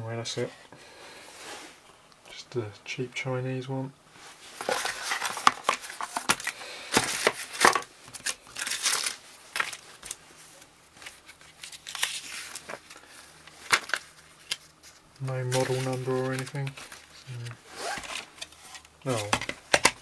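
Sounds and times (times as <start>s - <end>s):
paper rustling and crinkling: 4.2s - 20.0s.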